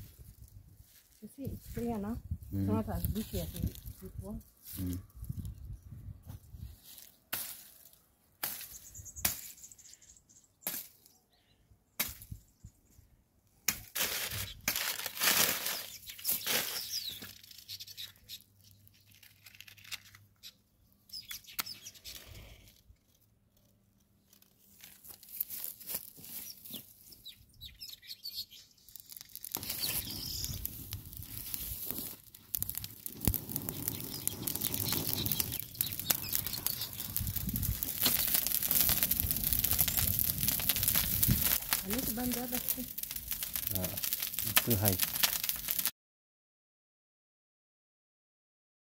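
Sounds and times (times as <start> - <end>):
dry brush and twigs rustling: 0.0 - 5.7, 6.3 - 9.7, 13.7 - 20.6, 21.6 - 27.3, 28.5 - 45.9
paper crinkling: 14.0 - 18.1, 18.7 - 20.4, 23.0 - 26.9, 28.8 - 45.9
fire crackling: 28.8 - 45.9.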